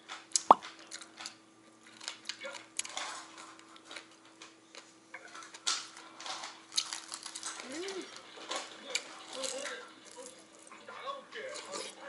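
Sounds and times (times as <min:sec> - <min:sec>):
chewing: 0:06.2 - 0:12.0.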